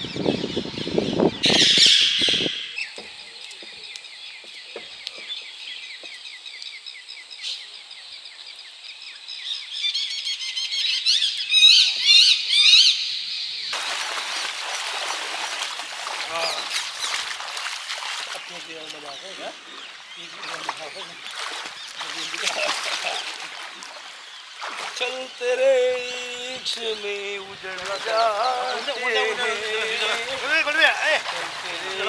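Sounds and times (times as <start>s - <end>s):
small birds chirping: 0.0s - 32.0s
river water rushing: 13.8s - 18.7s, 19.6s - 32.0s.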